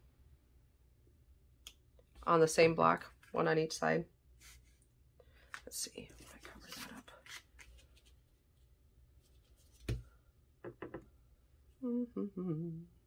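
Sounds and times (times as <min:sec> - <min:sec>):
paper handling noise: 0:05.4 - 0:08.4
person humming: 0:11.8 - 0:13.0.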